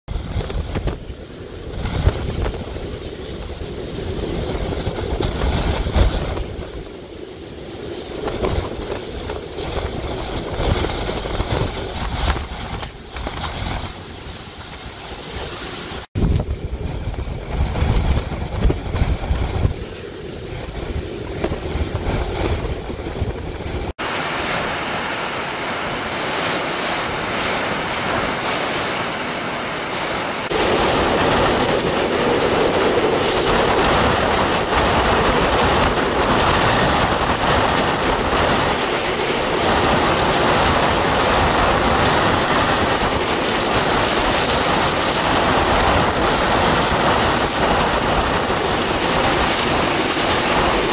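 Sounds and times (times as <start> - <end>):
rushing wind and rain: 0.1 - 50.9
wind buffeting microphone: 0.1 - 50.9.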